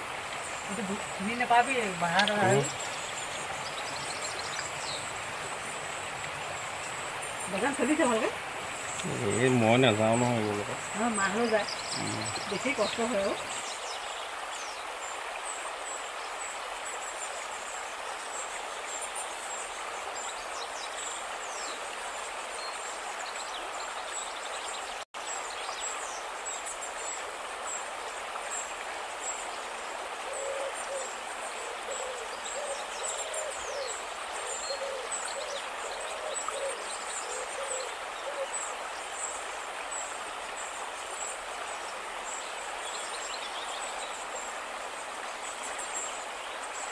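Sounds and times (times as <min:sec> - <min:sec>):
river rushing: 0:00.0 - 0:46.9
bird hooting: 0:30.3 - 0:38.5.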